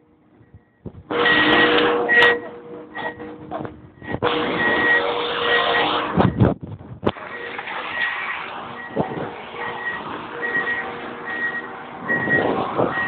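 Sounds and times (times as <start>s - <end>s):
wind on microphone: 0.4s - 1.6s, 5.9s - 7.3s, 8.2s - 10.8s, 11.9s - 13.0s.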